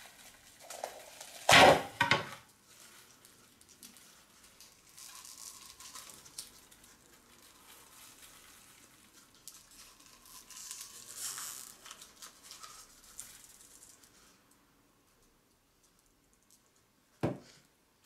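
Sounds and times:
paper casing crackling and tearing: 0.0s - 14.4s.

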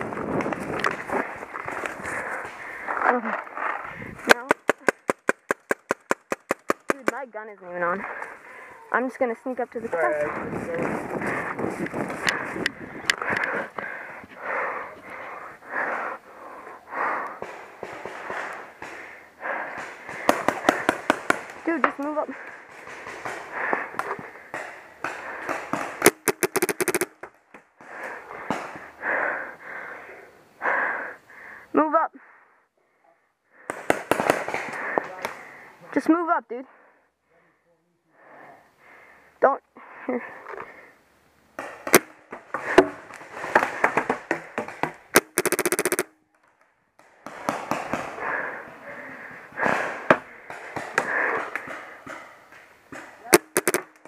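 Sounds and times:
paintball marker firing: 4.3s - 7.2s, 19.8s - 21.5s, 24.0s - 27.3s, 33.7s - 34.7s, 41.6s - 42.9s, 44.6s - 46.2s, 52.9s - 54.0s.

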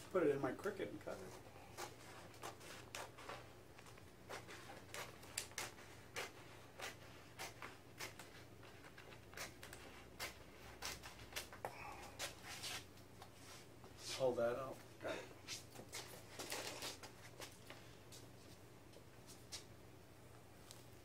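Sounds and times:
steady low hum: 0.0s - 21.0s
stencil crackling as peeled: 1.1s - 11.6s.

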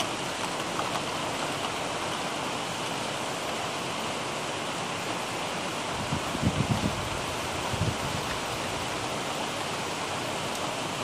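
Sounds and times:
heavy rain falling: 0.0s - 11.0s.

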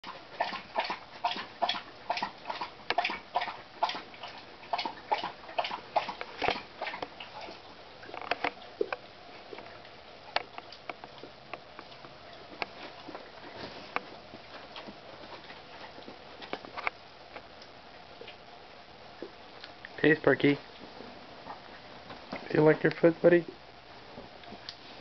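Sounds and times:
dog chewing at food bowl: 0.0s - 17.0s.

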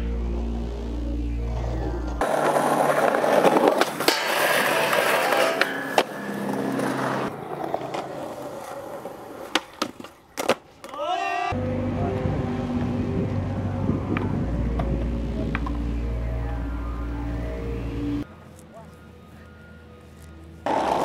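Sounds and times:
music with heavy bass: 0.0s - 2.2s, 11.6s - 18.2s
skateboard wheels rolling on concrete: 1.4s - 11.3s, 12.8s - 19.4s, 20.0s - 21.0s
skateboard trucks grinding on rail: 1.5s - 10.8s, 20.6s - 21.0s
skateboard clacks: 2.2s - 11.0s.

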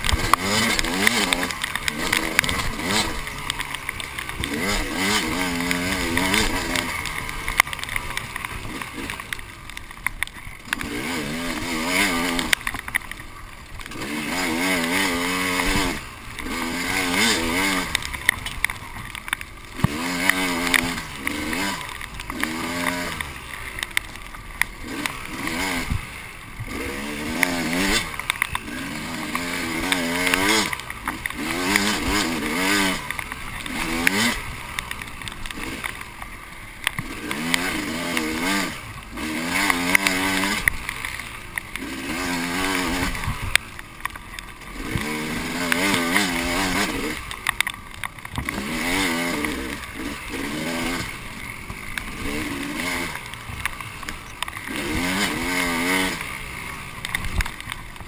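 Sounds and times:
bike knocking on rough ground: 0.0s - 58.0s
dirt bike engine revving: 0.0s - 58.0s.

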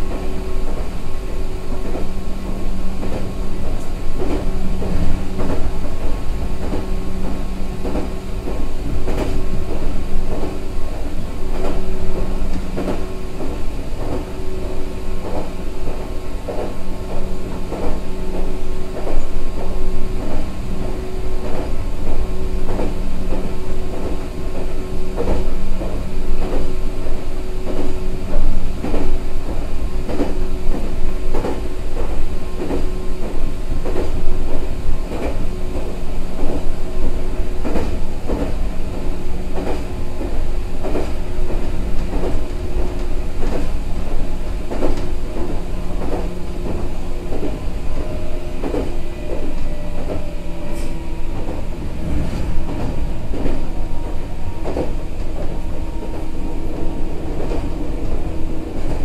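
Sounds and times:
electric train rumble and hum: 0.0s - 59.0s
wheels clacking over rail joints: 28.8s - 59.0s.

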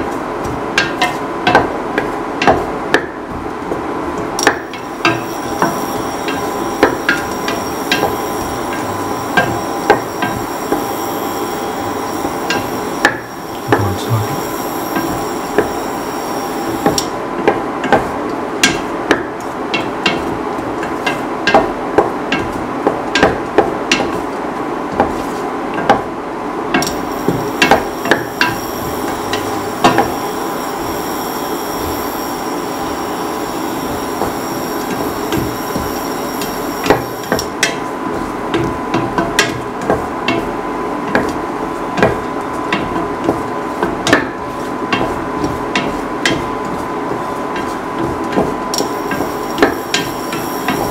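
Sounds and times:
vegetables sizzling in oil: 48.8s - 50.9s.

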